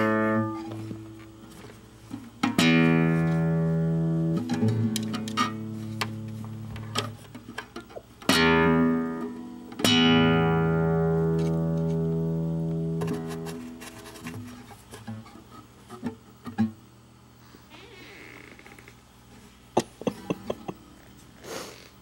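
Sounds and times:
guitar strings strummed: 0.0 - 1.2, 2.1 - 7.6, 8.2 - 14.4.

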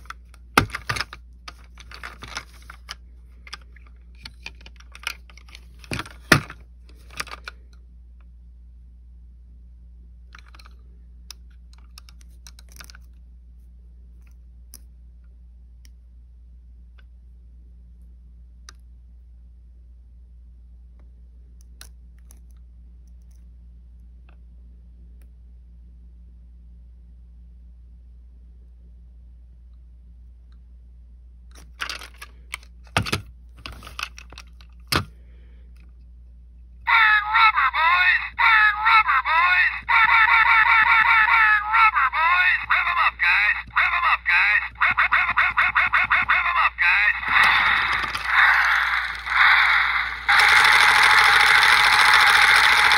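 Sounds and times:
plastic rattles: 0.0 - 7.6, 31.6 - 35.1
toy car clicks: 5.9 - 7.6, 39.8 - 52.9
fingers clicking a plastic toy car: 47.3 - 52.9.

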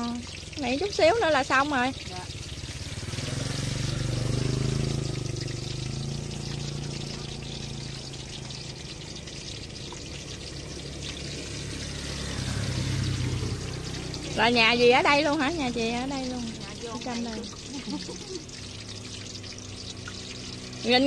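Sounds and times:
food deep-frying in oil: 0.0 - 21.0.

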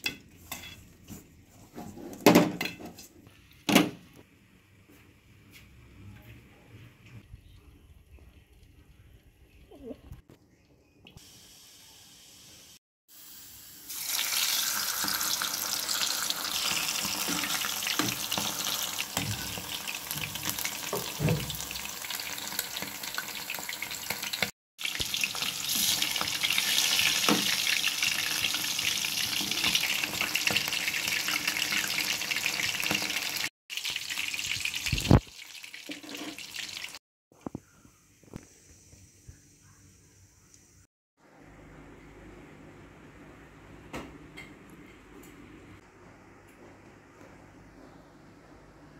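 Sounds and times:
food deep-frying in hot oil: 11.1 - 37.0.

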